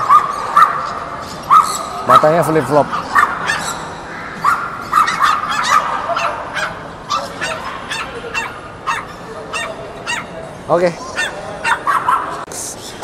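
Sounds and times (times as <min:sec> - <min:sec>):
small dogs yapping: 0:00.0 - 0:12.5.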